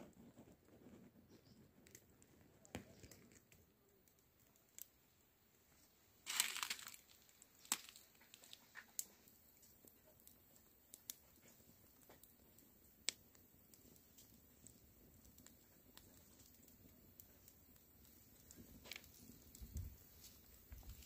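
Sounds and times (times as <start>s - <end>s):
plastic sack crinkling: 6.2s - 8.5s.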